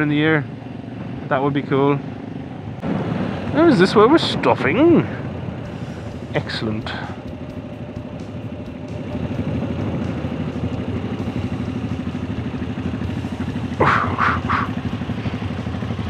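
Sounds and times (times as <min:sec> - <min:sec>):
motorcycle engine idling: 0:05.2 - 0:16.0.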